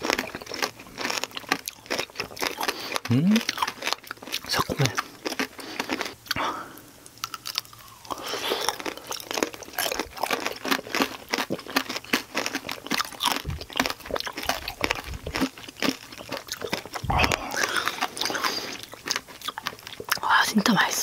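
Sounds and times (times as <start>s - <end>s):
crunching hard candy shell: 0.0s - 6.4s, 7.0s - 20.2s
wet chewing: 0.0s - 20.3s
soft low thumps: 13.4s - 13.8s, 17.0s - 17.5s.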